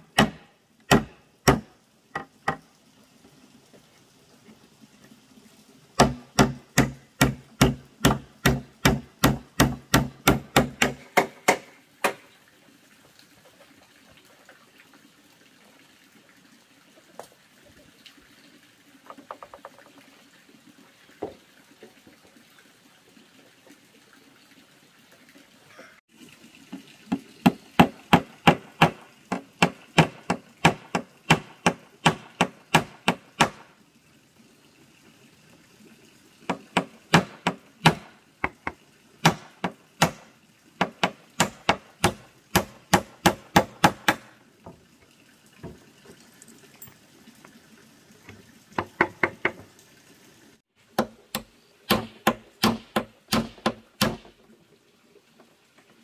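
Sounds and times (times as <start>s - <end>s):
tool striking wood: 0.1s - 2.6s, 6.0s - 12.2s, 27.8s - 33.6s, 40.8s - 44.3s, 51.0s - 54.3s.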